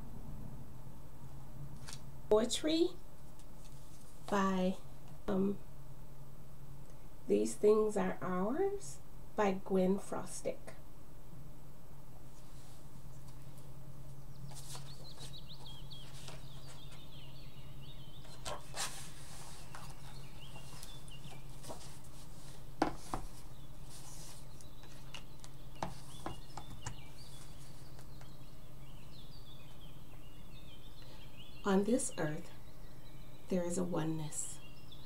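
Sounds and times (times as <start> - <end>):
steady low hum: 0.0 - 35.0
songbirds singing: 13.0 - 35.0.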